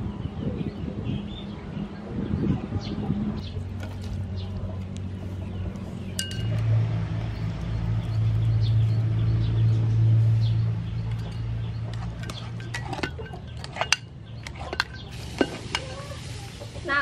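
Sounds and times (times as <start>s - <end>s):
low steady hum: 3.4s - 9.2s
metal strainer clinking on tray: 6.2s - 6.6s.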